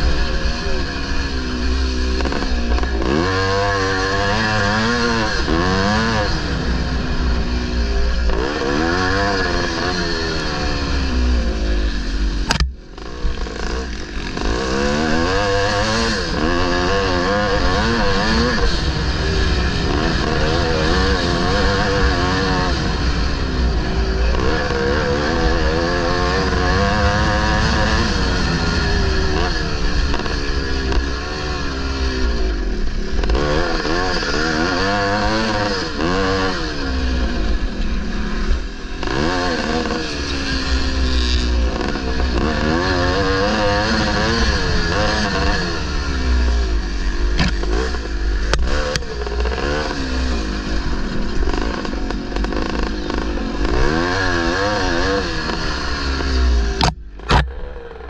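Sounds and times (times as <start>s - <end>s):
motorcycle engine revving: 0.0s - 58.0s
sharp click: 12.5s - 12.8s, 47.4s - 47.6s, 56.8s - 57.6s.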